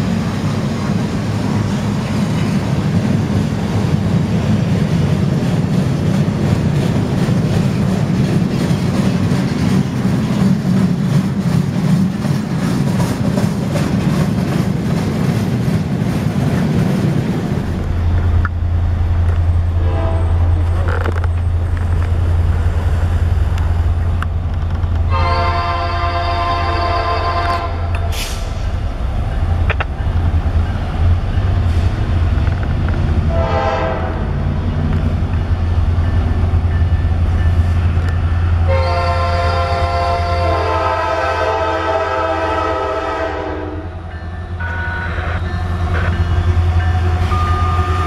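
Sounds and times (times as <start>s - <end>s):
diesel locomotive droning: 0.0s - 48.0s
freight train rolling on steel wheels: 0.0s - 48.0s
locomotive air horn: 19.8s - 20.7s, 25.1s - 28.6s, 33.3s - 34.4s, 38.6s - 44.0s, 44.6s - 46.2s, 46.8s - 48.0s.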